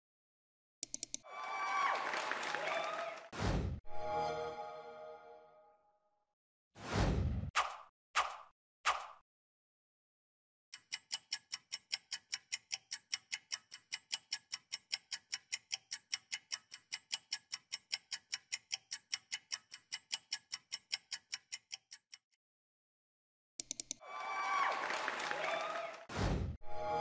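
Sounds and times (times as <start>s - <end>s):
fast clock ticking: 10.8s - 22.4s.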